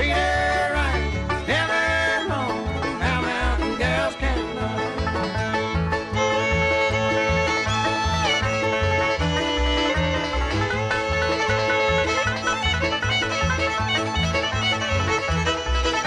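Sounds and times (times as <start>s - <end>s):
banjo: 0.0s - 16.0s
fiddle: 0.0s - 16.0s
steady bass beat: 0.0s - 16.0s.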